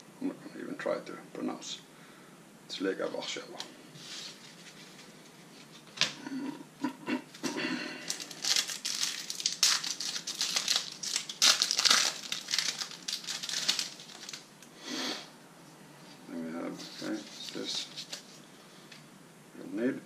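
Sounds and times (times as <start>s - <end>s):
foil wrapper crinkling and tearing: 8.0s - 14.5s.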